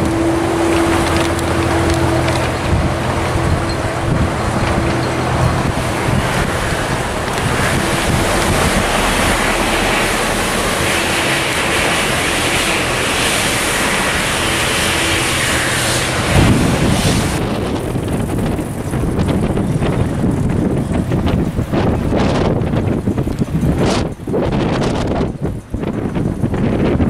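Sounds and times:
small diesel locomotive hum: 0.0s - 27.0s
wind buffeting microphone: 0.0s - 27.0s.

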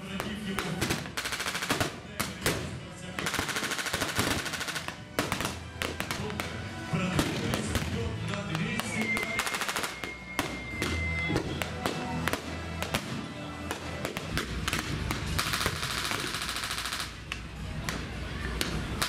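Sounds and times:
music: 0.0s - 19.0s
rifle shots: 0.2s - 6.4s
machine-gun fire: 0.6s - 2.6s, 3.2s - 6.3s, 14.4s - 17.2s.

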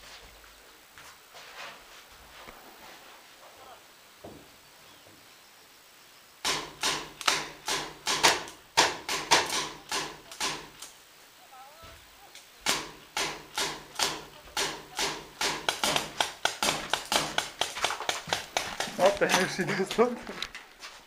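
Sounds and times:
paintball marker firing: 6.4s - 10.8s, 12.6s - 19.4s.

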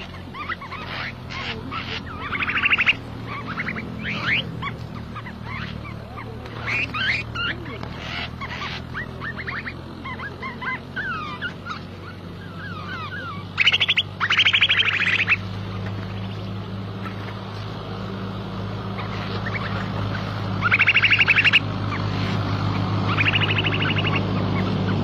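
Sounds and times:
harsh rattling bird chatter: 0.0s - 18.2s, 18.8s - 25.0s
small birds chirping: 0.0s - 25.0s
steady low hum: 0.0s - 25.0s.

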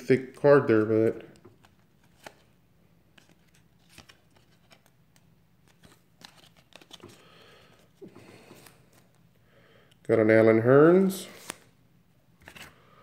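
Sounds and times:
trading cards clicking and rustling: 0.2s - 2.5s, 3.1s - 9.2s, 11.3s - 11.7s, 12.4s - 12.8s.

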